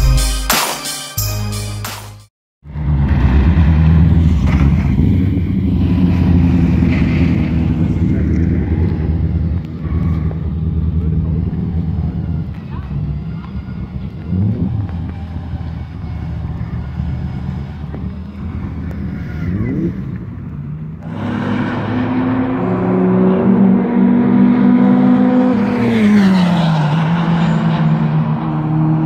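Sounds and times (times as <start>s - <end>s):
idling engines rumble: 2.7s - 21.5s
race car passing at high revs: 2.7s - 29.0s.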